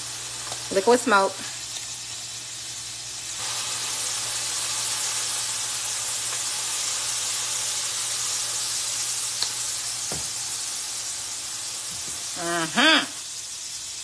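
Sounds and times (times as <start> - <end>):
liquid hissing in a hot pan: 0.0 - 14.0.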